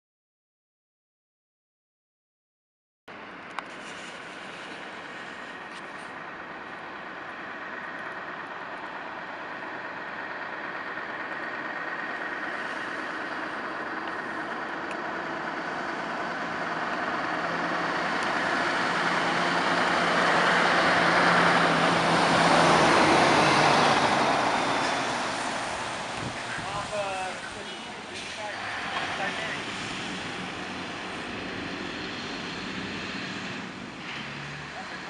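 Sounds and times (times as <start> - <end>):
diesel truck driving past: 3.1 - 35.0.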